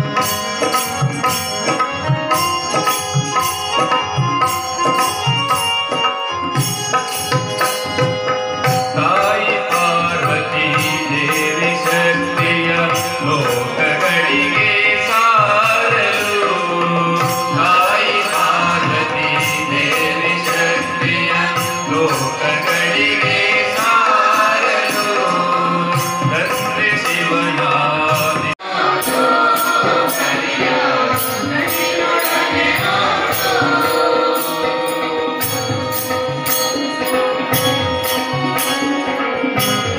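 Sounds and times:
keyboard: 0.0 - 39.9
tabla: 0.0 - 39.9
group singing into microphones: 8.6 - 39.9.

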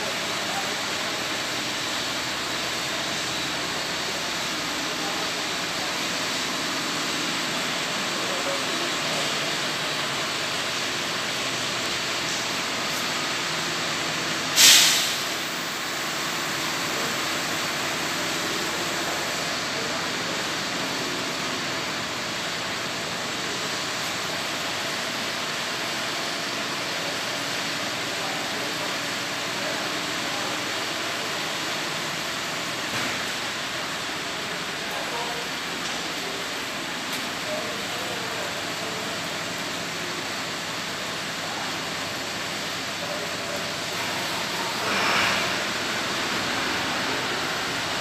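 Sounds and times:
bus diesel engine idling: 0.0 - 48.0
air brake hiss: 14.5 - 15.4.

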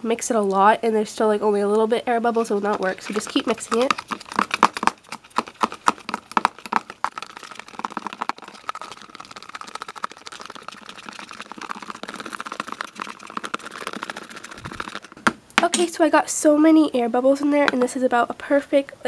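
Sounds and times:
spoon stirring soap in plastic bowl: 1.8 - 4.6.

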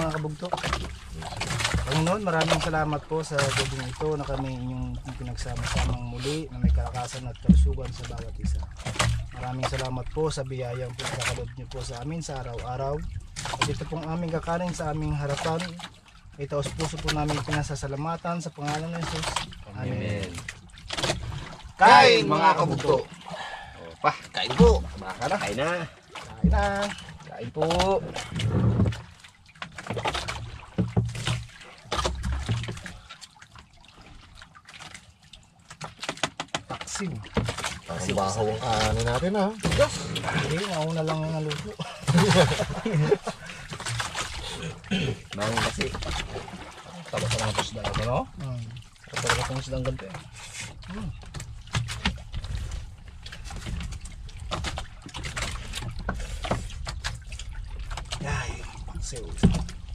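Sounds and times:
low rumble of water and wind: 0.0 - 59.9.

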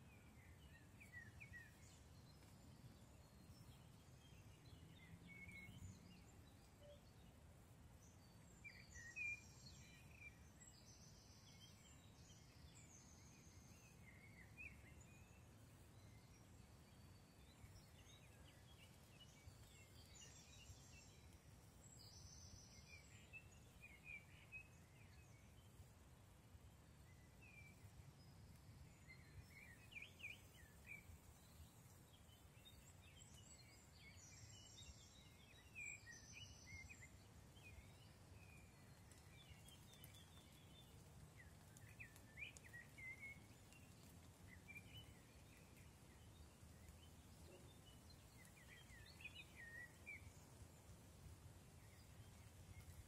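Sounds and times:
small bird chirps: 27.5 - 51.1.

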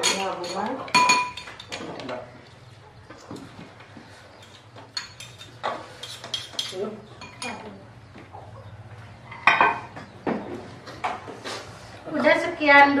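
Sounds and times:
spoons clinking on plates: 0.0 - 2.2, 4.3 - 7.7.

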